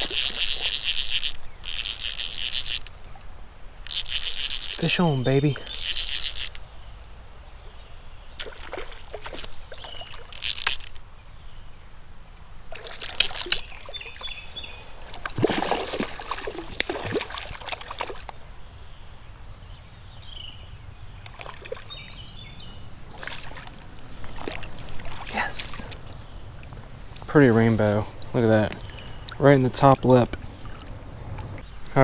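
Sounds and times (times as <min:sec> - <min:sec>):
fish splashing in water: 0:08.4 - 0:11.0, 0:12.7 - 0:14.3, 0:15.1 - 0:18.4, 0:21.3 - 0:22.0, 0:23.1 - 0:26.7.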